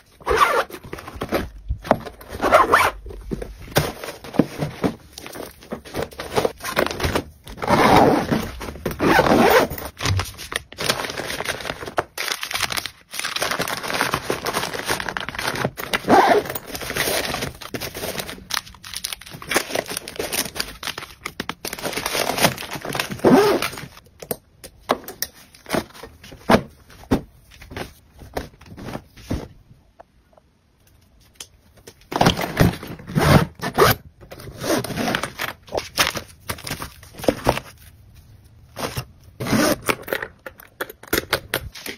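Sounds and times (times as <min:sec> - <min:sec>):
plastic packets crinkling: 0:09.9 - 0:24.1.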